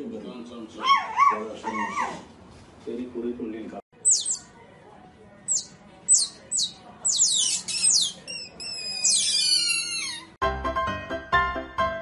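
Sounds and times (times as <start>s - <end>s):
otters squeaking: 4.0s - 4.5s, 5.5s - 10.4s.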